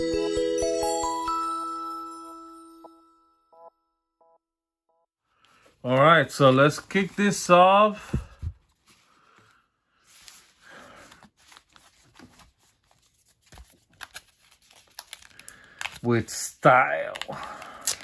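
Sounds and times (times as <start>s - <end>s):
foil wrappers rustling: 10.0s - 16.2s.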